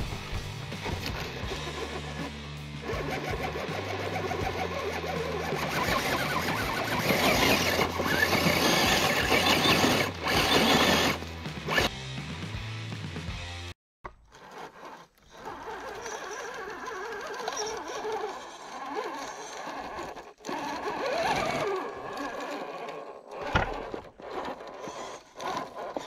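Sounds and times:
electric toy car motor whining: 0:00.9 - 0:11.9, 0:14.3 - 0:26.0.

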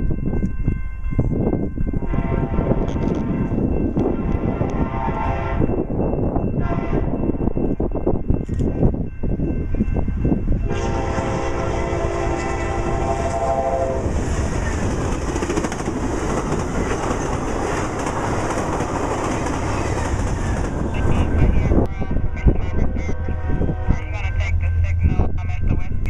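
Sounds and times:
train horn blast: 0:02.1 - 0:03.5, 0:04.1 - 0:05.7, 0:06.6 - 0:07.2, 0:10.6 - 0:14.1, 0:22.0 - 0:24.9
train wheels clattering: 0:14.1 - 0:20.9.

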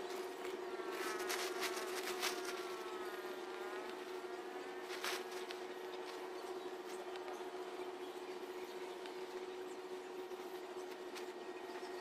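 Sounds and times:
tent fabric rustling: 0:00.0 - 0:07.0
steady buzzing hum: 0:00.0 - 0:12.0.

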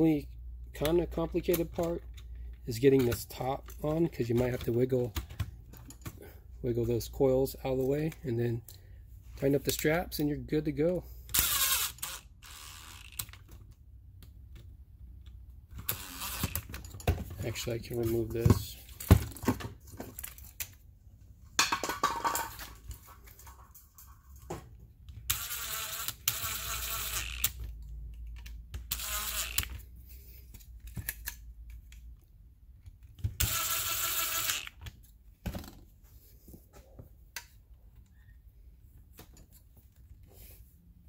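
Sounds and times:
clicks and knocks of parts handled: 0:00.6 - 0:06.3, 0:12.9 - 0:20.9, 0:21.6 - 0:33.6, 0:34.4 - 0:38.3, 0:38.9 - 0:40.3
power screwdriver running: 0:15.8 - 0:16.6, 0:28.9 - 0:29.7, 0:33.4 - 0:34.8.

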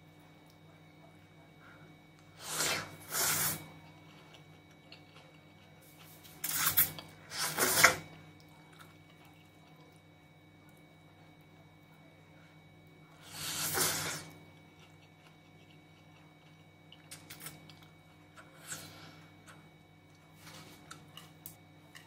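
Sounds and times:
loud noodle slurps: 0:02.4 - 0:03.6, 0:06.4 - 0:08.0, 0:13.3 - 0:14.3.

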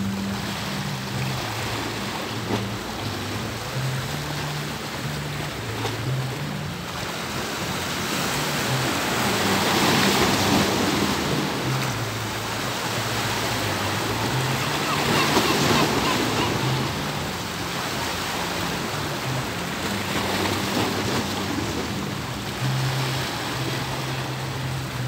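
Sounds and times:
low changing notes: 0:00.0 - 0:25.0
sea waves washing: 0:00.0 - 0:25.0.

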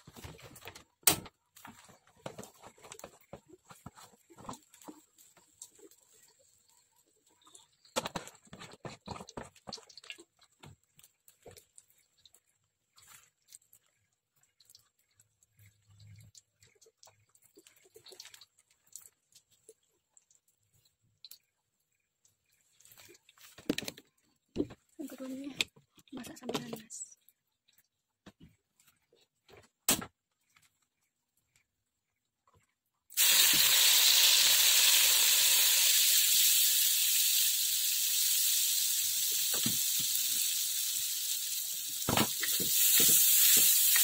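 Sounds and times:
faint clicks and ticks: 0:08.8 - 0:29.4.

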